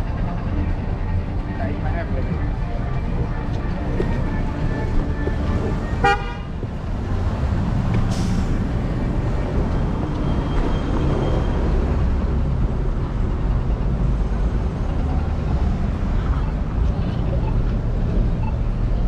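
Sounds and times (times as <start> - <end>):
street traffic: 0.0 - 19.0
vehicle horn toot: 6.0 - 6.5.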